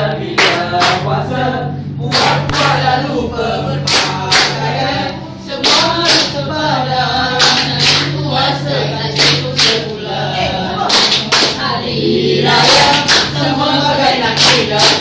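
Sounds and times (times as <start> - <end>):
group singing: 0.0 - 15.0
hand clapping: 0.4 - 1.0, 2.1 - 2.8, 3.9 - 4.6, 5.6 - 6.4, 7.4 - 8.2, 9.2 - 9.8, 10.9 - 11.6, 12.7 - 13.4, 14.4 - 15.0.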